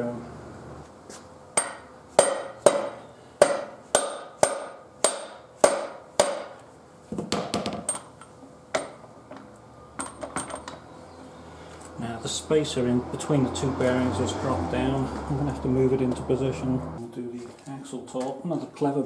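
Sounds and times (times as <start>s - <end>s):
hammer striking metal axle: 1.6s - 6.6s, 7.4s - 9.1s.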